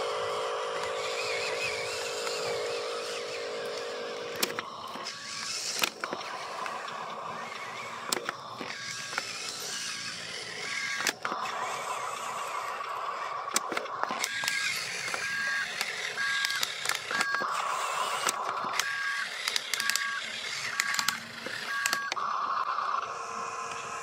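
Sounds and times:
electric motor whine: 0.0s - 24.0s
electronic two-tone reversing beep: 15.2s - 17.6s, 19.8s - 22.2s.

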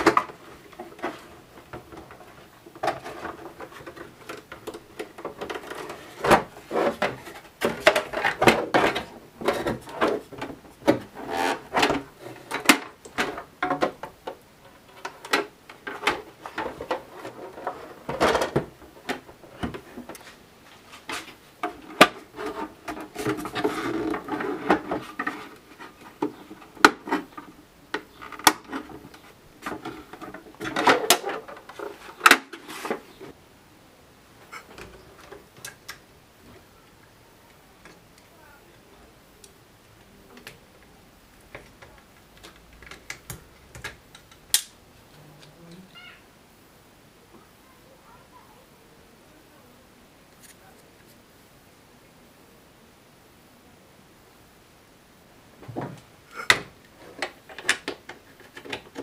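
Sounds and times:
plastic scraping on plastic: 0.0s - 33.4s.

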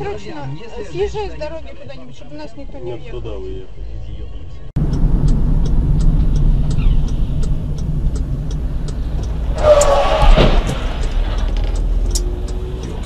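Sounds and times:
car engine and road noise: 0.0s - 13.0s
faint even ticking: 4.8s - 9.9s, 11.0s - 13.0s.

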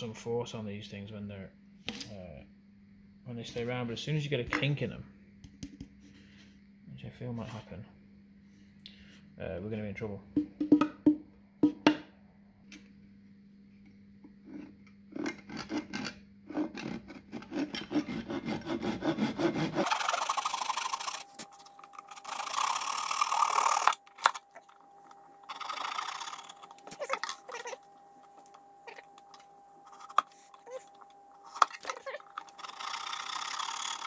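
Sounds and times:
hand saw cutting wood: 15.2s - 21.4s, 22.0s - 24.0s, 25.5s - 27.6s, 31.7s - 34.0s.

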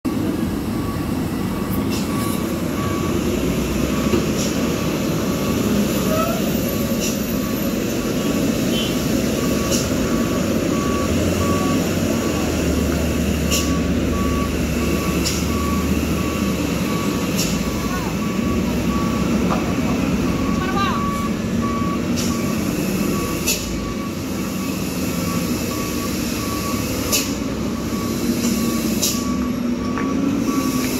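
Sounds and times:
diesel trucks running slowly: 0.0s - 30.9s
truck reversing beeper: 0.1s - 30.9s.

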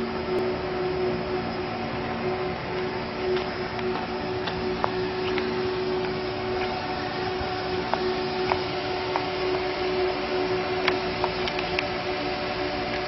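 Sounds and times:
engine-generators droning: 0.0s - 13.0s.

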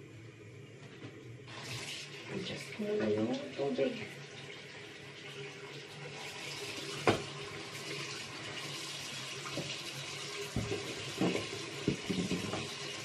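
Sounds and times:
tap running into sink: 6.7s - 8.1s, 9.3s - 13.0s.

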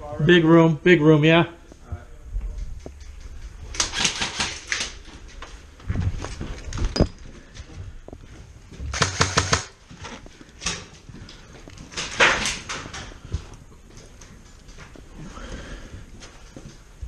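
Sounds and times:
airsoft guns firing bursts: 3.8s - 4.8s, 8.9s - 9.8s.

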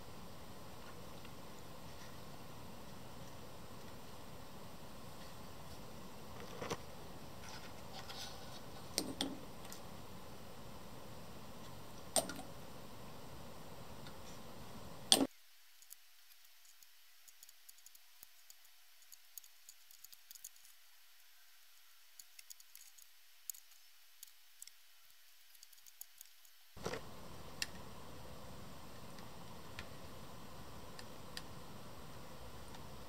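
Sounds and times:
faint hiss: 0.0s - 33.0s.

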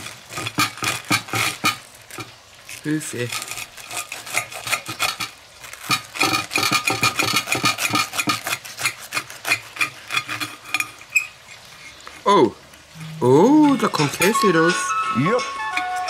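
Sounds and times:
knife sawing through crisp crust: 0.0s - 12.2s.

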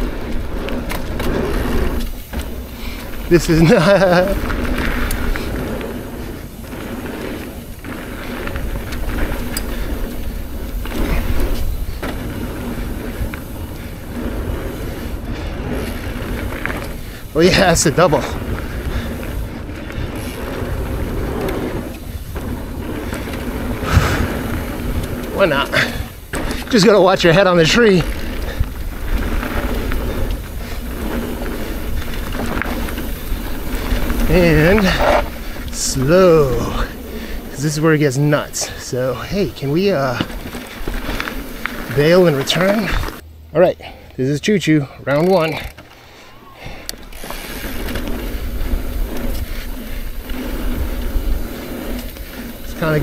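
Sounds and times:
wind on microphone: 0.0s - 26.3s
bike clicks and rattles: 0.0s - 53.0s
bike tyres on rocky trail: 0.0s - 53.0s.

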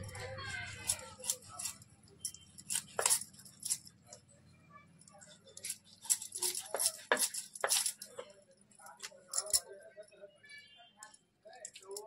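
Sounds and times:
knife clinking and scraping: 0.0s - 4.2s, 5.1s - 9.8s.

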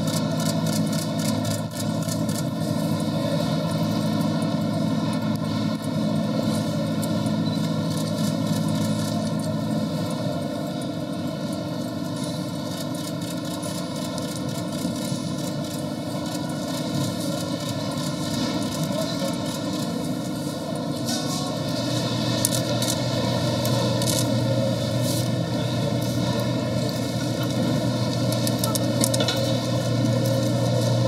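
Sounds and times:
low hum: 0.0s - 31.0s.

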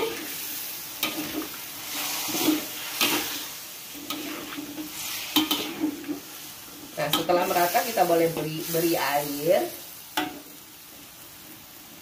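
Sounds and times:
food sizzling in a wok: 0.0s - 12.0s.

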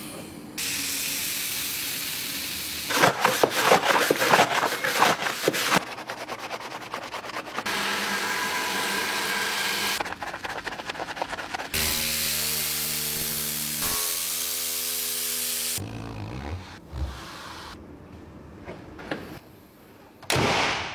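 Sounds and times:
hiss of spray: 0.6s - 2.9s
brush scratching over plastic: 2.9s - 7.7s, 10.0s - 12.0s.

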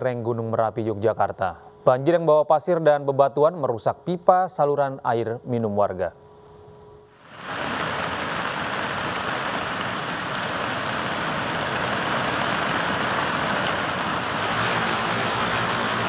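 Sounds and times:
churning flood water: 7.3s - 16.0s.

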